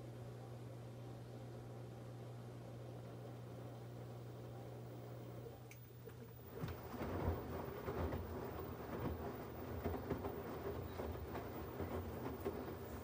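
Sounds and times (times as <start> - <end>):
low steady hum: 0.0 - 13.0
clothes and water sloshing in drum: 6.5 - 13.0.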